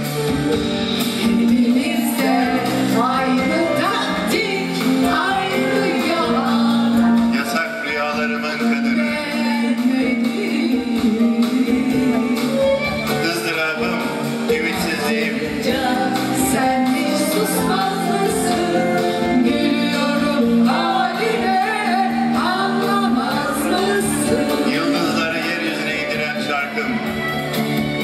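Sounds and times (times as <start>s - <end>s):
instrumental backing: 0.0s - 28.0s
women singing: 1.2s - 7.4s, 8.9s - 13.1s, 14.6s - 25.6s.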